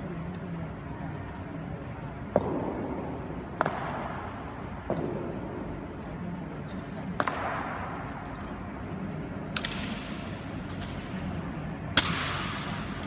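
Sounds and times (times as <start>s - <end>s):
rifles slapped and grounded: 9.5s - 11.2s, 11.9s - 13.0s.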